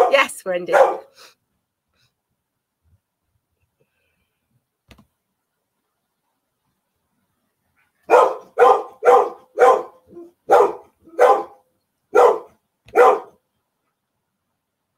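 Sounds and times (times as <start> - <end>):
dog barking: 0.0 - 1.2, 8.0 - 13.4.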